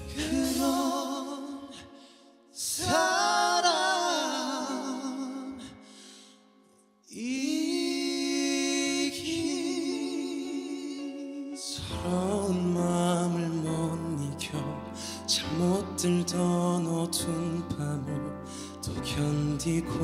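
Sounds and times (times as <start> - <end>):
men singing long notes with vibrato: 0.0 - 6.0.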